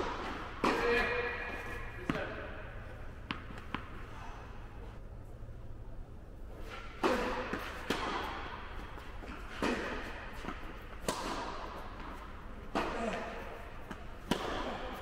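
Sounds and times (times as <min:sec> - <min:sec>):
ball bouncing on court: 0:00.0 - 0:02.6, 0:03.2 - 0:04.0, 0:13.9 - 0:15.0
racket hitting tennis ball: 0:00.0 - 0:04.1, 0:06.6 - 0:15.0.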